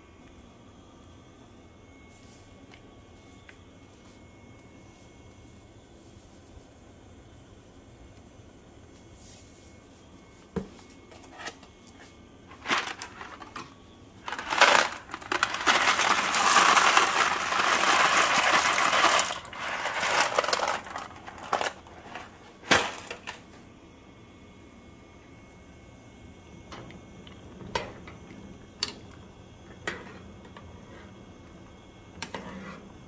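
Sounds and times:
dry pasta pouring into a pot: 14.3 - 21.8.

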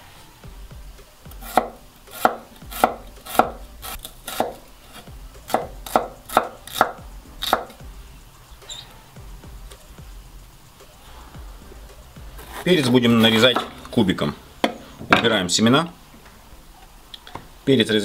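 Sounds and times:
knife chopping on wooden board: 1.3 - 7.8.

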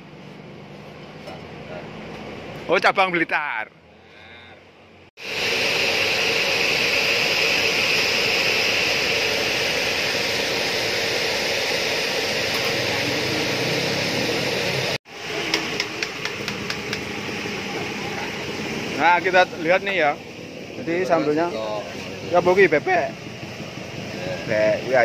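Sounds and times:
gas burner roaring hiss: 3.9 - 25.0
frying oil crackling and popping: 15.1 - 18.3.

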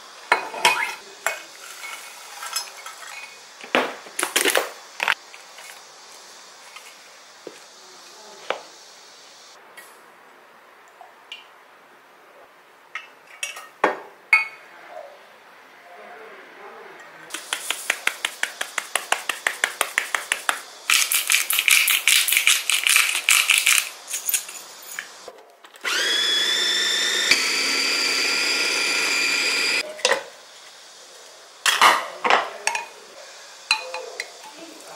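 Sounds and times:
electric blender whining: 25.8 - 29.8.

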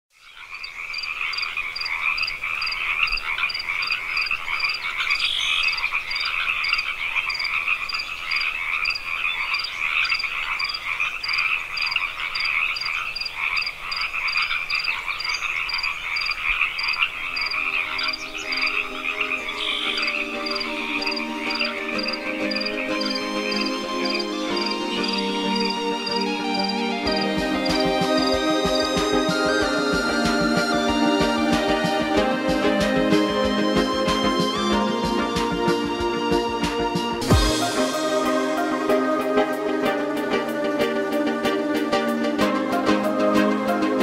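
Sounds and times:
chorus of croaking animals: 0.2 - 24.2
low music notes: 17.6 - 44.0.

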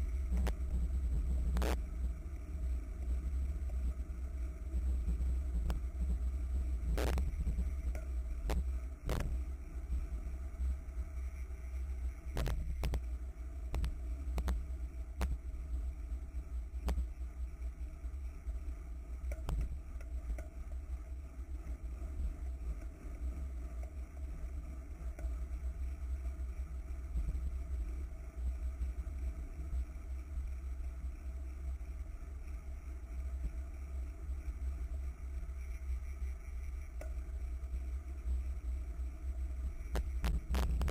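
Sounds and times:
wind rumbling on microphone: 37.2 - 40.9.

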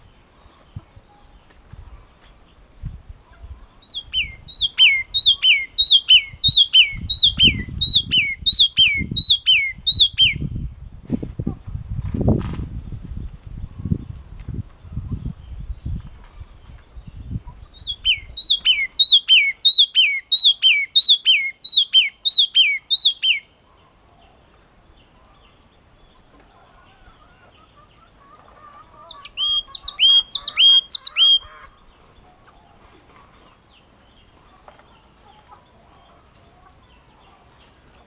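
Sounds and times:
crested tit singing: 3.4 - 10.6, 14.9 - 32.7.

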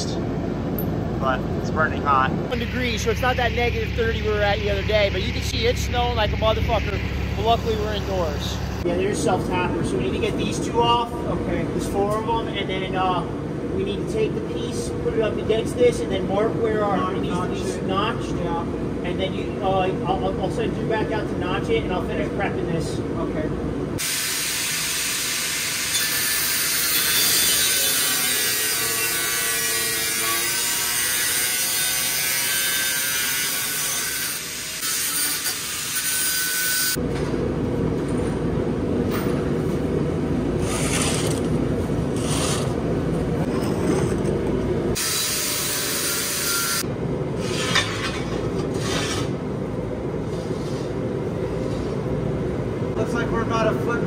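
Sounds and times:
angle grinder grinding steel: 24.0 - 37.0, 45.0 - 46.8.

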